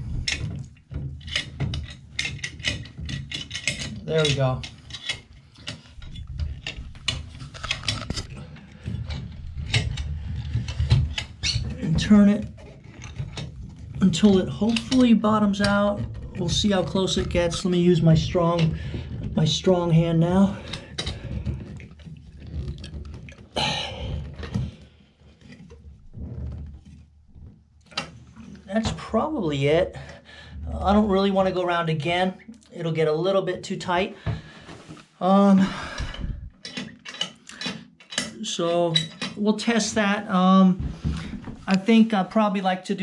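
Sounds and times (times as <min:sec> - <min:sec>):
metal threads clicking and scraping: 0:00.2 - 0:12.0, 0:36.0 - 0:39.4.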